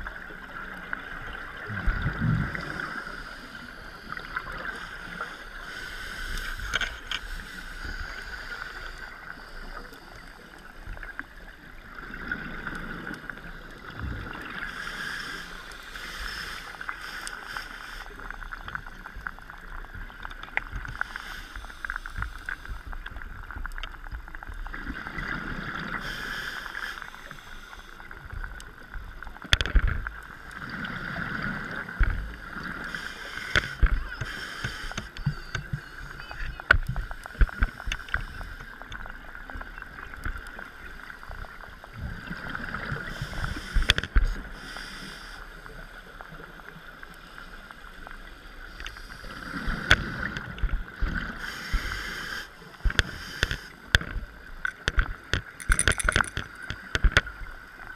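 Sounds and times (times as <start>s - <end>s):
steady hiss: 2.5s - 11.2s, 12.6s - 23.4s, 25.2s - 29.1s, 30.5s - 36.2s, 36.9s - 39.7s, 40.3s - 54.8s.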